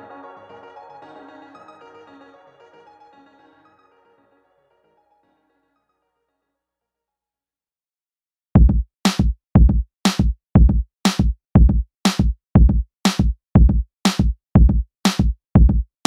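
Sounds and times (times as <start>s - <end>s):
drum machine beat: 8.6s - 15.9s.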